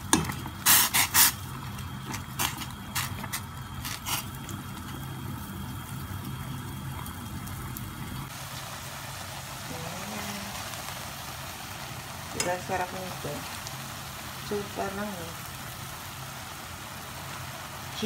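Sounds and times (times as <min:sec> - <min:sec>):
steady low hum: 0:00.0 - 0:08.3
food sizzling in a pan: 0:00.0 - 0:18.0.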